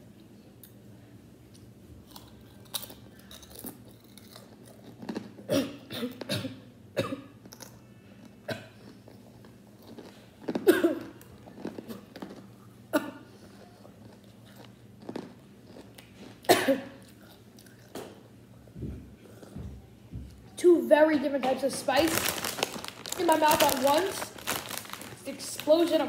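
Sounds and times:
chips crunched and chewed: 1.6s - 5.5s, 7.4s - 12.7s, 13.5s - 18.0s, 21.8s - 26.0s.

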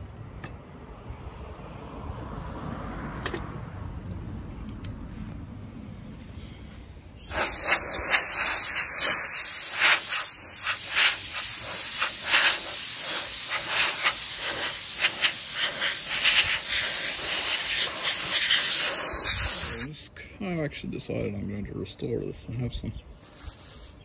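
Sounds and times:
compressed air blow gun hissing: 7.2s - 19.9s.

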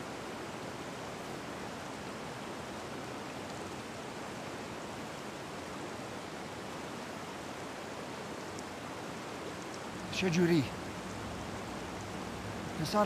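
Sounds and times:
steady rain falling: 0.0s - 13.0s.

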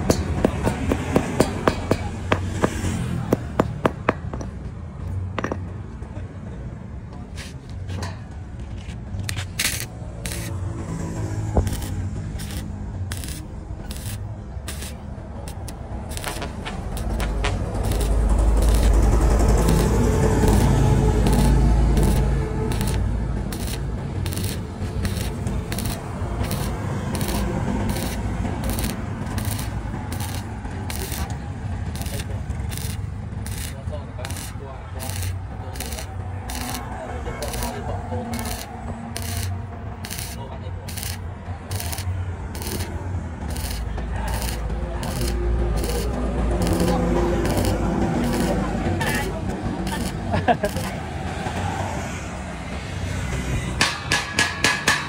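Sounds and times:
hammer knocking on metal tube: 0.0s - 4.6s, 53.8s - 55.0s
welding arc crackling: 9.2s - 51.4s.

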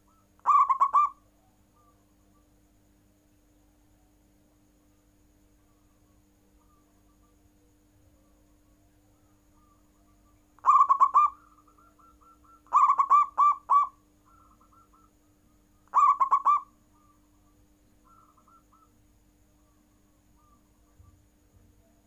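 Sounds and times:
dove cooing: 0.0s - 2.4s, 6.6s - 19.0s, 19.6s - 21.2s.

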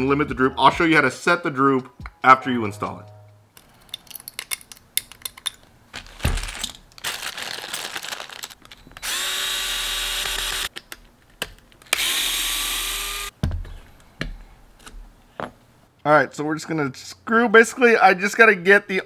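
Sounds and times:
electric screwdriver motor whine: 9.0s - 10.7s, 12.0s - 13.3s.

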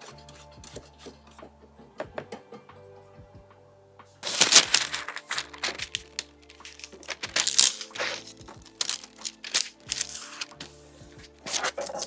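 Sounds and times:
background music: 0.0s - 12.0s
parchment paper crackling and rustling: 4.2s - 12.0s.

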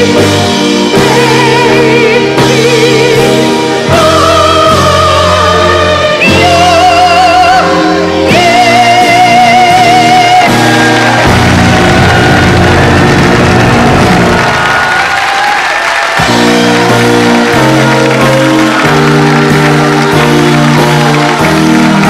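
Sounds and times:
instrumental accompaniment: 0.0s - 22.0s
person singing operatically: 0.9s - 11.0s.

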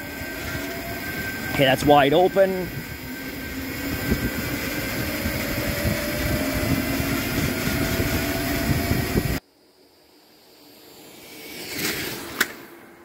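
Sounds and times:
electric motor whining: 0.0s - 9.4s
wind rush on microphone: 0.0s - 9.4s.

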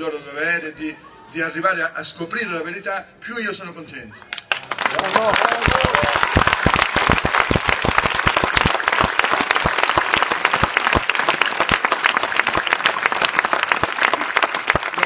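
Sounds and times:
crowd applauding: 4.2s - 15.0s.

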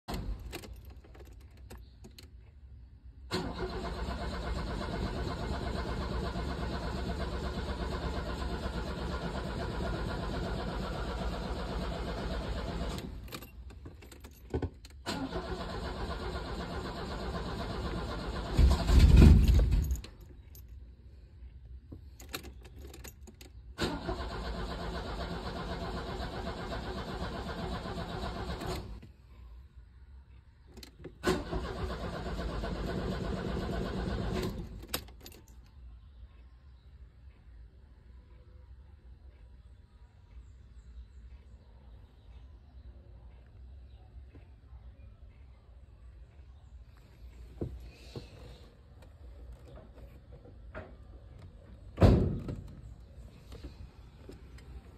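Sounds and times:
engine burst: 3.3s - 13.2s
starter cranking car engine: 3.3s - 13.7s, 15.0s - 20.2s, 22.4s - 29.0s, 30.8s - 35.4s.

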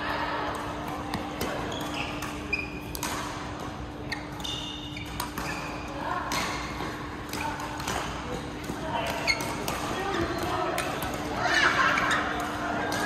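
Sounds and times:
voices in echoing hall: 0.0s - 13.0s
shoes squeaking on court floor: 0.6s - 10.5s, 11.5s - 13.0s
racket hitting shuttlecock: 0.6s - 13.0s.

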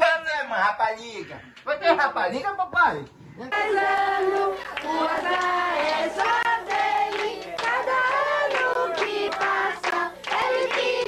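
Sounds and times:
group singing a celebration song: 3.5s - 11.0s
hands clapping along: 4.0s - 11.0s.

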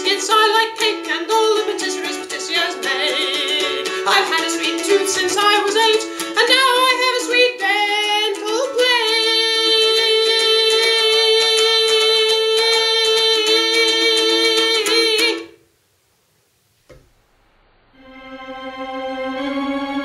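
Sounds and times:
person singing: 0.0s - 15.6s
ukulele strumming: 0.0s - 15.6s.

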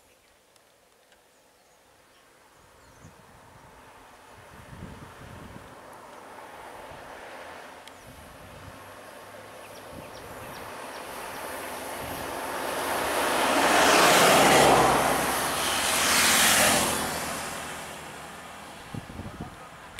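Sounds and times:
vehicle passing by: 6.2s - 19.9s.

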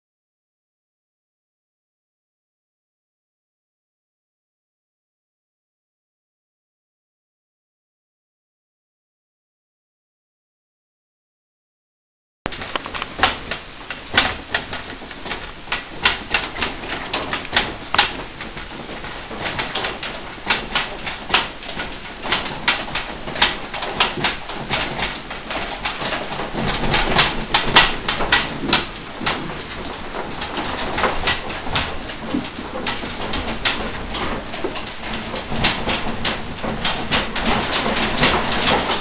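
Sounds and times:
apartment rattling: 12.5s - 39.0s
rapid clicks and knocks: 12.5s - 39.0s.

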